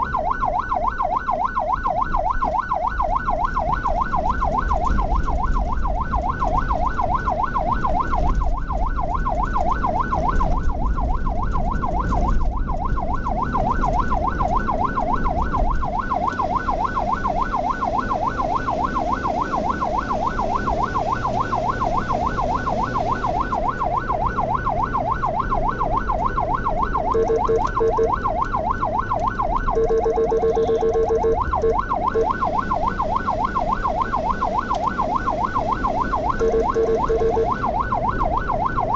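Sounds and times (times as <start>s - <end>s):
ambulance siren yelping: 0.0s - 38.9s
vehicle driving rumble: 0.0s - 38.9s
vehicle horn blasts: 30.5s - 30.9s.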